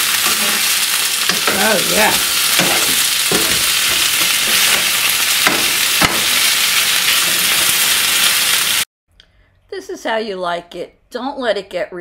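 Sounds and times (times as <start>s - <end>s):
chicken sizzling in oil: 0.0s - 8.9s.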